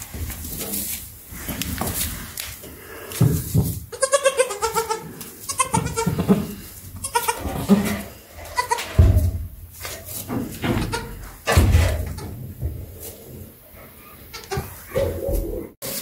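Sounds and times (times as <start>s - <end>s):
goats bleating: 3.9s - 9.0s.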